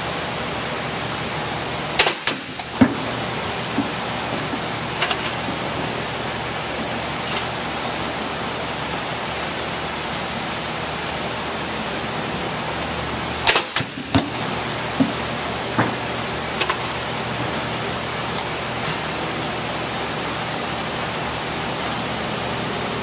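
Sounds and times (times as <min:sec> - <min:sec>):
sharp knocks: 0:02.0 - 0:05.9.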